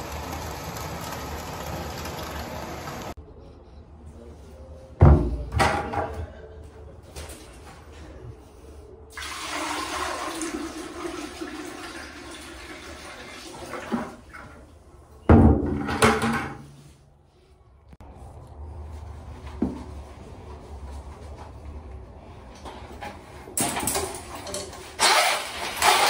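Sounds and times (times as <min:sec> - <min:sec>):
water rushing into toilet bowl: 0:09.1 - 0:14.6.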